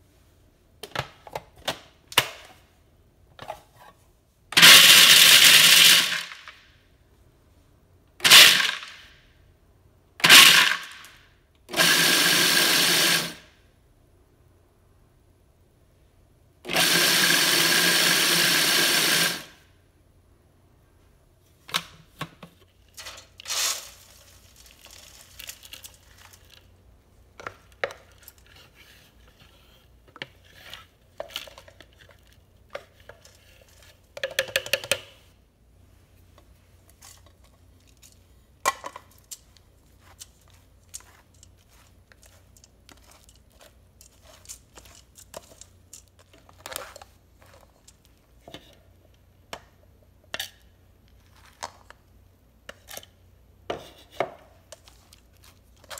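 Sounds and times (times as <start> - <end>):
food processor grinding: 4.6 - 6.4, 8.2 - 8.9, 10.2 - 11.0, 11.7 - 13.4, 16.7 - 19.5.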